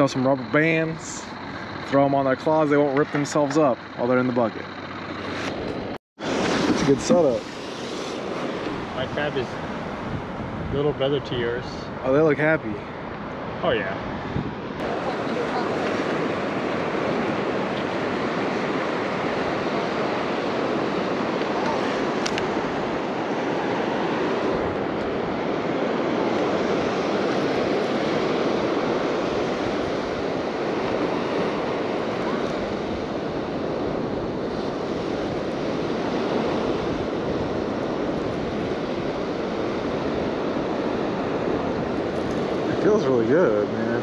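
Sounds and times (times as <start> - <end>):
ocean surf breaking: 6.2 - 44.0.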